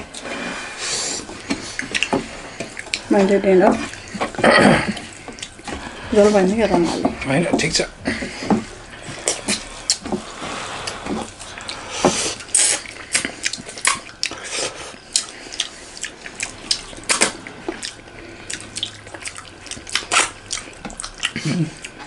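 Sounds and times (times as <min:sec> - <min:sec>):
chewing food: 0:00.0 - 0:22.0
fingers squishing food on plates: 0:00.0 - 0:22.0
mouth clicks and lip smacks: 0:01.3 - 0:03.1, 0:09.2 - 0:10.2, 0:10.8 - 0:22.0.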